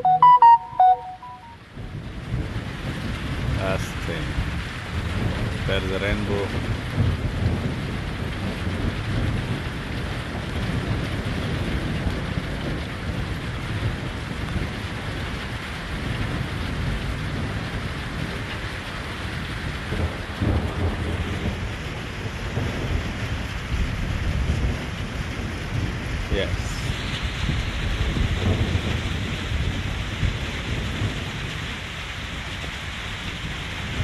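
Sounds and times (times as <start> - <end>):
rain falling: 0.0 - 34.0
thunder rumbling: 1.8 - 5.7, 6.5 - 34.0.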